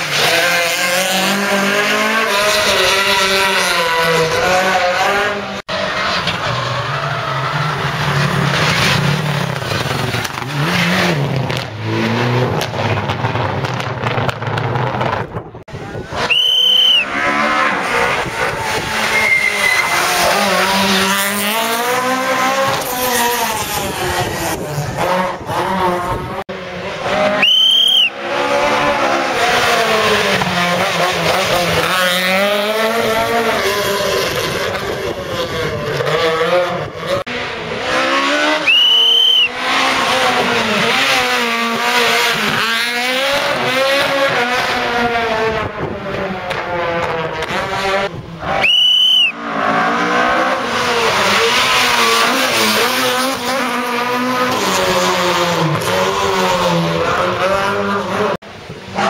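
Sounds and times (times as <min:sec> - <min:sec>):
rally cars revving past: 0:00.0 - 0:27.4, 0:28.0 - 0:59.0.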